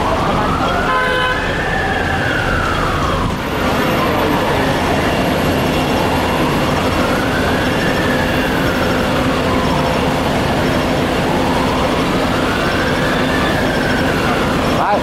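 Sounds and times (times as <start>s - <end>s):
emergency siren wailing: 0.0s - 15.0s
loud steady rumble: 0.0s - 15.0s.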